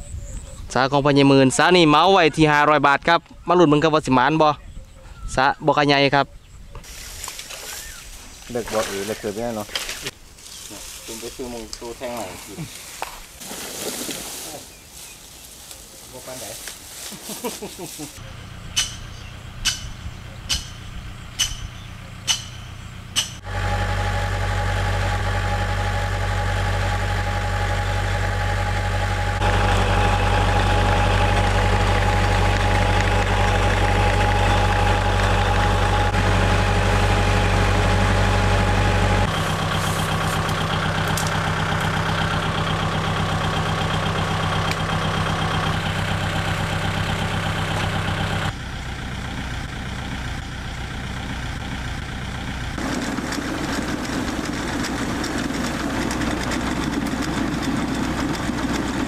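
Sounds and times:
engine running: 0:06.8 - 0:59.0
sharp knocks: 0:18.8 - 0:20.8, 0:21.4 - 0:23.4.

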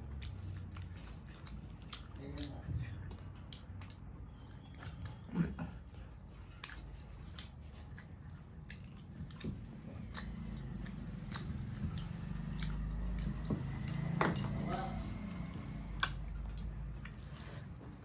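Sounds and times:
chewing and mouth sounds: 0:00.0 - 0:18.0.

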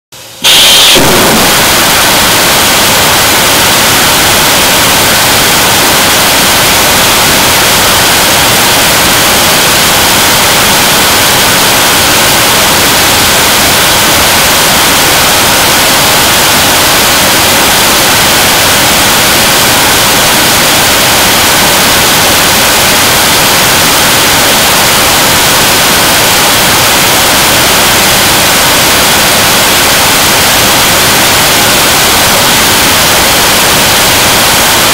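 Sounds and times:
rocket engine firing: 0:00.4 - 0:26.7.

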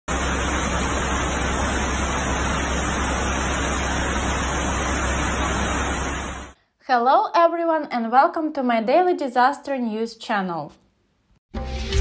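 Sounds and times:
floodwater rushing: 0:00.1 - 0:06.6.

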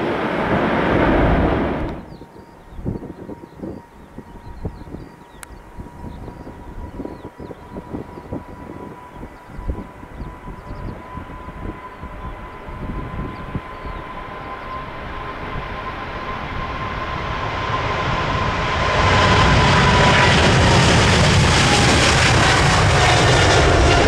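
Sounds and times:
jet airliner engines roaring: 0:00.0 - 0:24.0
wind buffeting microphone: 0:00.0 - 0:24.0.

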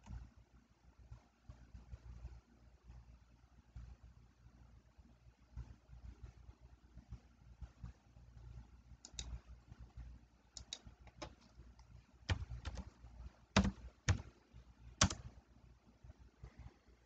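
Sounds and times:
keyboard keystroke clicks: 0:09.0 - 0:09.4, 0:10.5 - 0:12.9, 0:13.5 - 0:14.3, 0:15.0 - 0:15.3.

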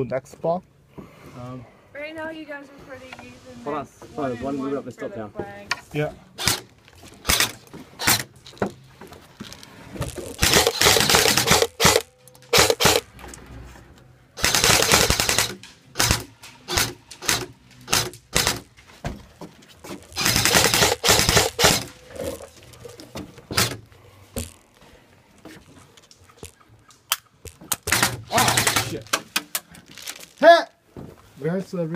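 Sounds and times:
airsoft rifle automatic bursts: 0:06.4 - 0:08.3, 0:10.4 - 0:13.0, 0:14.4 - 0:18.6, 0:20.2 - 0:22.0.

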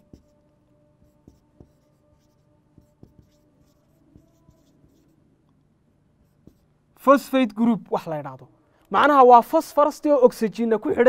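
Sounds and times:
marker pen writing on whiteboard: 0:00.0 - 0:05.2, 0:06.1 - 0:06.8.

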